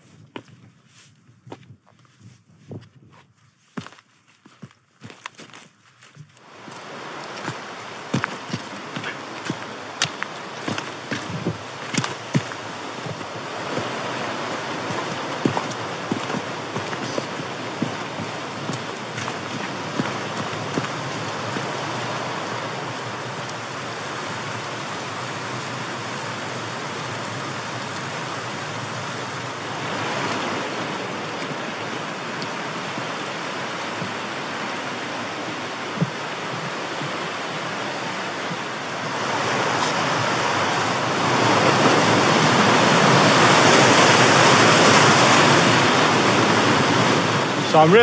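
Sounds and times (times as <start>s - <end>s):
stream rushing over rocks: 6.3s - 48.0s.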